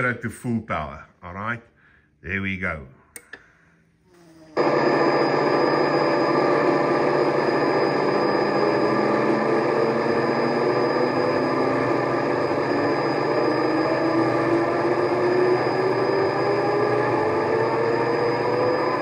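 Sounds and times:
model diesel locomotive engine sound: 0:04.6 - 0:19.0.

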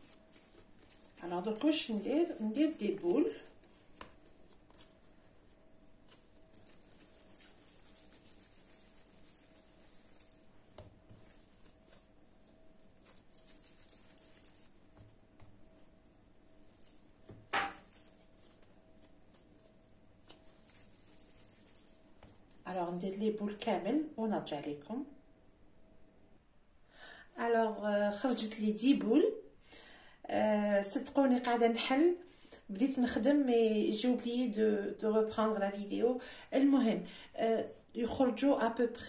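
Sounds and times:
hands handling dough on countertop: 0:00.0 - 0:23.0
faint steady hum: 0:00.0 - 0:39.0.

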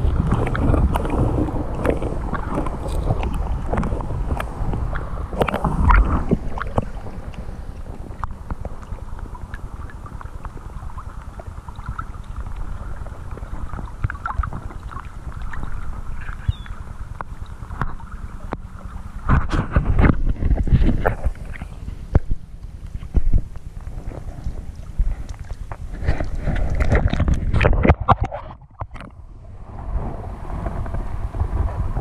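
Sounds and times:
water splashing and sloshing: 0:00.0 - 0:32.0
wind noise on microphone: 0:00.0 - 0:32.0
water dripping: 0:00.3 - 0:19.0.

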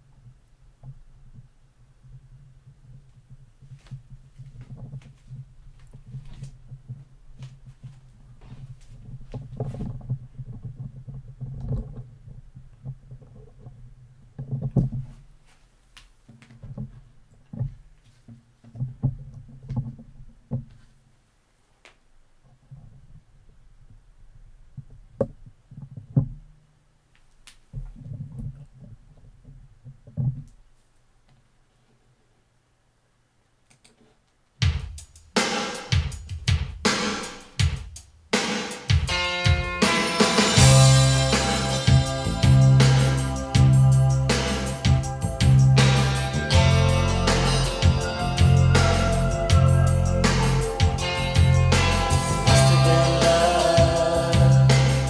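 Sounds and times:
recorded drum kit over speakers: 0:34.6 - 0:55.0.

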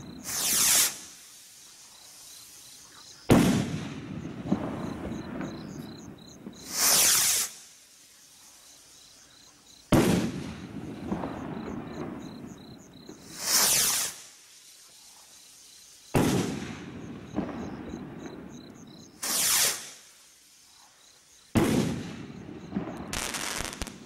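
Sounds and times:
firework rocket launch whoosh: 0:00.0 - 0:01.3, 0:06.6 - 0:07.6, 0:13.2 - 0:14.3, 0:19.2 - 0:20.0
crickets chirping: 0:00.0 - 0:24.0
firework bursting bang: 0:03.3 - 0:07.5, 0:09.9 - 0:14.1, 0:16.2 - 0:18.4, 0:21.6 - 0:24.0.

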